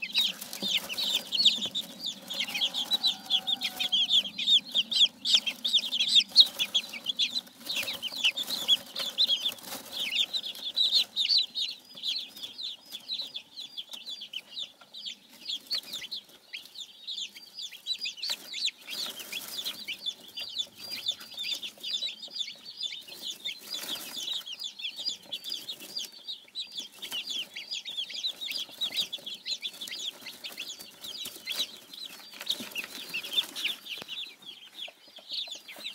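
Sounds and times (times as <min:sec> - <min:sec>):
chicks peeping: 0:00.0 - 0:35.9.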